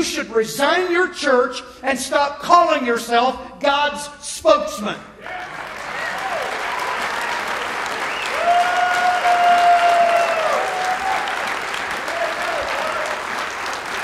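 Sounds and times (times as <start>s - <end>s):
person cheering: 5.2s - 13.4s
audience applauding: 5.2s - 14.0s.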